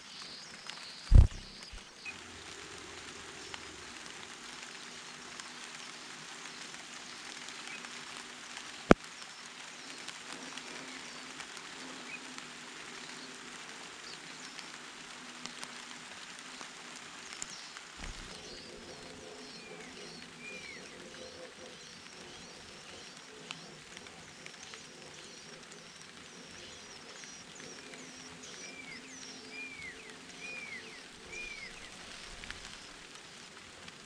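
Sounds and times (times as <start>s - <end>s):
rain pattering on leaves: 0.0s - 34.0s
sharp click: 1.1s - 1.8s
bird chirps: 1.1s - 2.1s, 18.0s - 23.6s.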